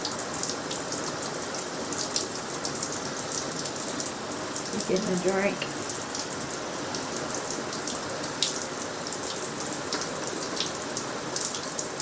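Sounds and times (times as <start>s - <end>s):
small splashes and drips: 0.0s - 12.0s
shower water running into bathtub: 1.4s - 12.0s.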